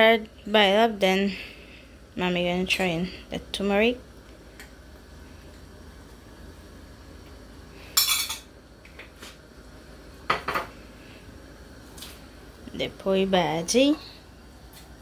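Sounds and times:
low steady hum: 0:00.0 - 0:15.0
metal spoon clinking dishes: 0:08.0 - 0:08.5.

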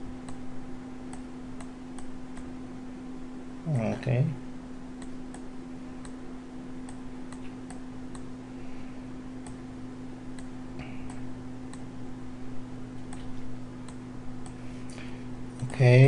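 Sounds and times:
low electrical hum: 0:00.0 - 0:16.0
computer mouse clicking: 0:01.1 - 0:02.5, 0:06.8 - 0:08.3, 0:13.0 - 0:14.6.

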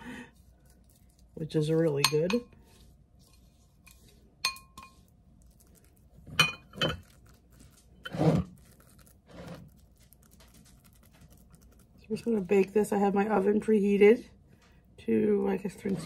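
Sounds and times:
glass bowl clinking on pan: 0:04.4 - 0:05.0, 0:06.4 - 0:07.1.

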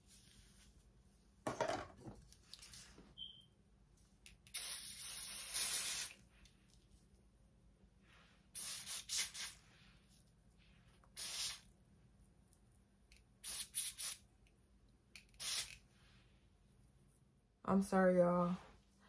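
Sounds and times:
short hissing sprays: 0:04.5 - 0:06.2, 0:08.5 - 0:09.8, 0:11.1 - 0:11.7, 0:13.4 - 0:14.2, 0:15.3 - 0:15.8.

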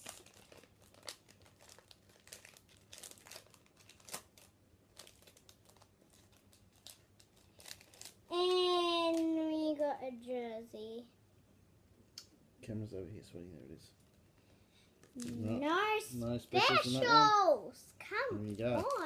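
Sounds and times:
foil wrapper crinkling: 0:00.0 - 0:09.4, 0:18.5 - 0:19.0.

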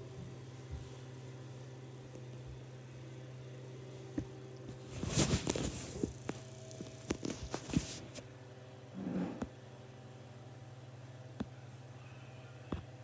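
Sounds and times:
steady low hum: 0:00.0 - 0:13.0
rustling: 0:04.7 - 0:08.2.

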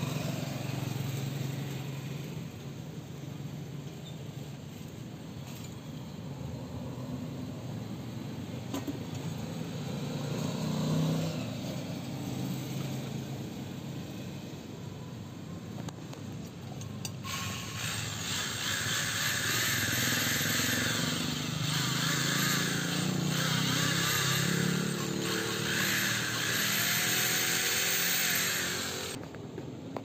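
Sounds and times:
gritty valve grinding: 0:17.0 - 0:29.2.

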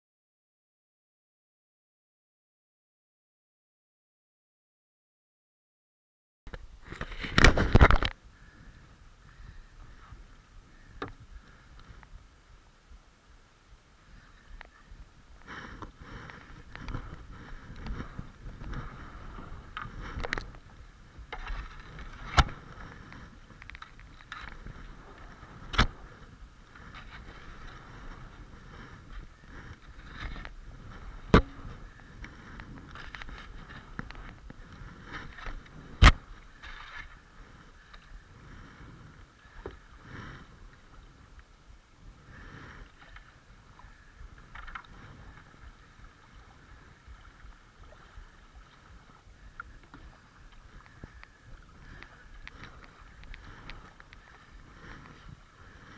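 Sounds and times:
water rushing along hull: 0:07.1 - 0:55.9
sharp knocks: 0:31.3 - 0:31.6.

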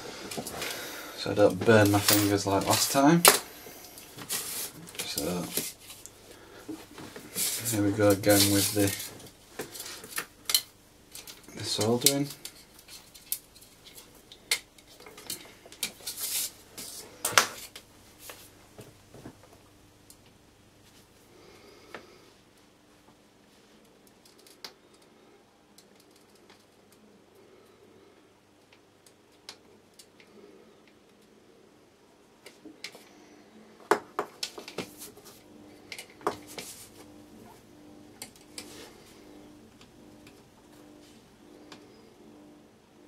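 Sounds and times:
faint steady hum: 0:00.0 - 0:43.0
hand tools clicking and clinking: 0:01.8 - 0:03.4.

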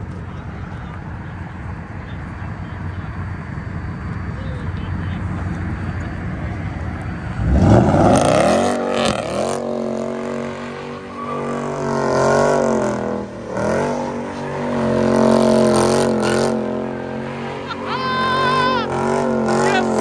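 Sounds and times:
car engine revving hard: 0:07.2 - 0:20.0.

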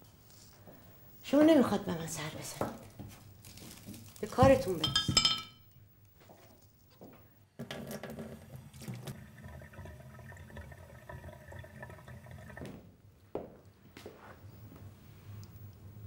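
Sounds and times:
tap water running into sink: 0:08.0 - 0:12.8.

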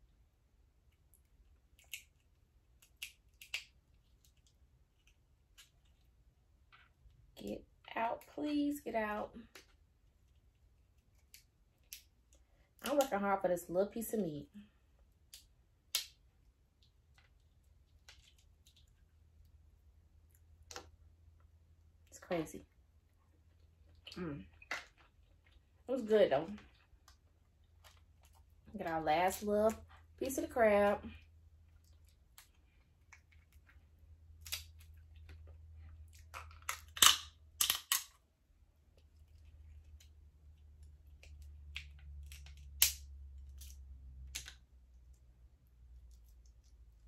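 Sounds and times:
crab shell cracking: 0:01.2 - 0:06.1, 0:10.3 - 0:13.0, 0:15.1 - 0:19.1, 0:31.7 - 0:38.2, 0:41.0 - 0:44.6.

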